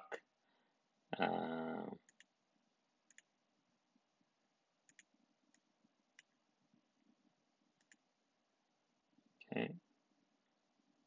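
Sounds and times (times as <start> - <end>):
computer mouse clicks: 2.1 - 2.3, 3.1 - 3.3, 4.9 - 6.4, 7.8 - 8.0.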